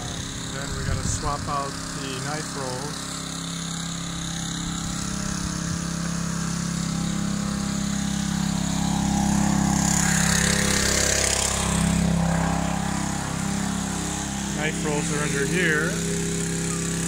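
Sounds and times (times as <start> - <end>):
small engine running: 0.0 - 17.0.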